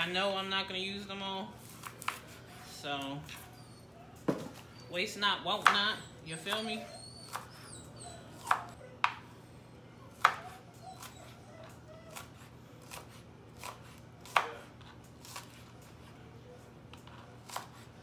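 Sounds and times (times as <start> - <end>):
knife tapping on cutting board: 8.5 - 9.2.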